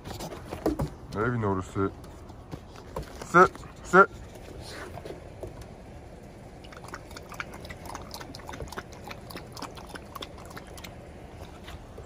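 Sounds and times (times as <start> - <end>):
puppy lapping water from a bowl: 6.6 - 11.9.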